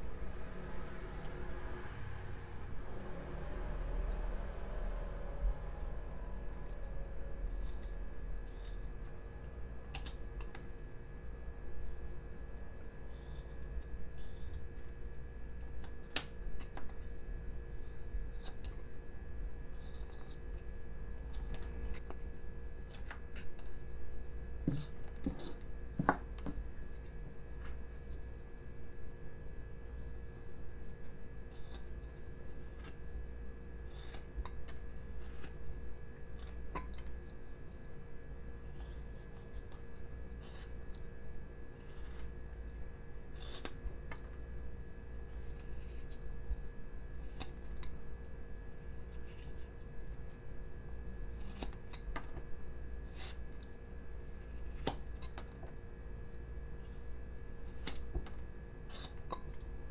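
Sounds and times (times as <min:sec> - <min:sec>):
steady hum: 0:00.0 - 0:59.9
knife cutting and scraping wood: 0:22.9 - 0:28.4, 0:30.9 - 0:33.1, 0:33.8 - 0:37.8, 0:38.6 - 0:41.1, 0:41.8 - 0:42.4, 0:43.3 - 0:44.3, 0:51.3 - 0:52.4, 0:53.0 - 0:55.6, 0:56.8 - 0:59.8.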